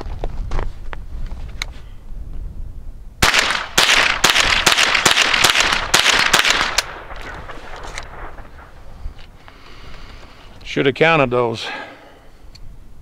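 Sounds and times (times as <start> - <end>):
rifle firing rapid shots: 3.2 - 8.8.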